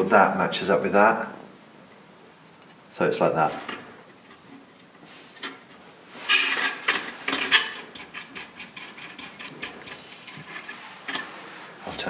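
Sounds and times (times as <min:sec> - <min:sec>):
circuit board scraping and rustling: 0:06.1 - 0:12.0.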